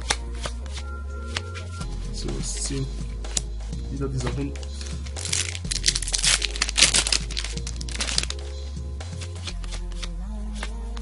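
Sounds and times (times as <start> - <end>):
background music: 0.0 - 11.0
foil wrapper crinkling: 4.8 - 8.4.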